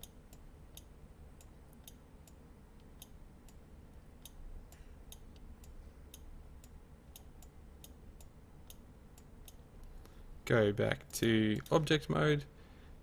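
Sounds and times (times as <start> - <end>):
computer mouse clicks: 0.0 - 10.2
low steady hum: 0.0 - 13.0.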